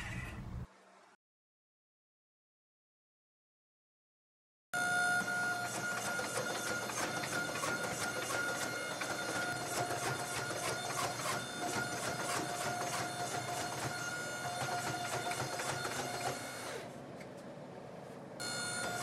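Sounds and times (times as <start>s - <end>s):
forge whine: 4.8s - 17.0s, 18.4s - 19.0s.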